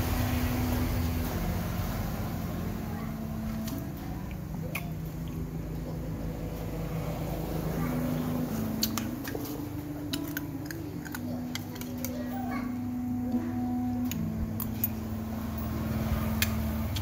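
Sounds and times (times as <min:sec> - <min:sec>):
low hum: 0:00.0 - 0:17.0
chewing: 0:03.5 - 0:05.9, 0:08.5 - 0:12.7, 0:16.3 - 0:17.0.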